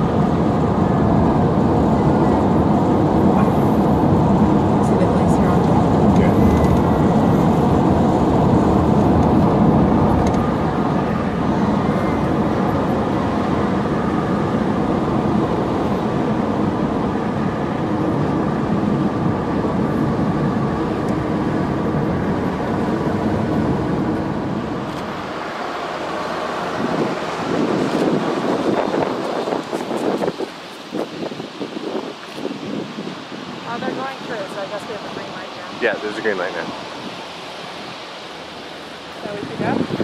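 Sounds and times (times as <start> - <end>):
car road and engine noise: 0.0 - 40.0.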